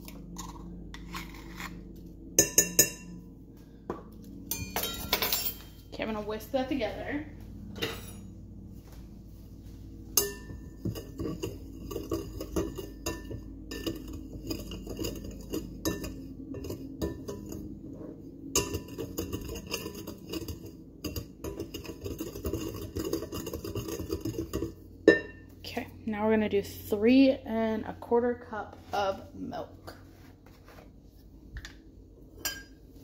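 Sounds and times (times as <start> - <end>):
whisk scraping mixing bowl: 10.2 - 24.9.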